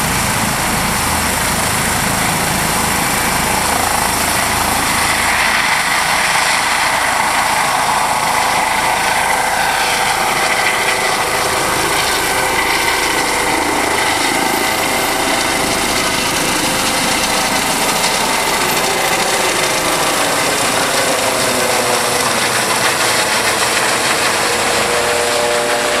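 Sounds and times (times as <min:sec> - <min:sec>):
helicopter rotor rushing: 0:00.0 - 0:26.0
helicopter turbine whine: 0:00.0 - 0:26.0.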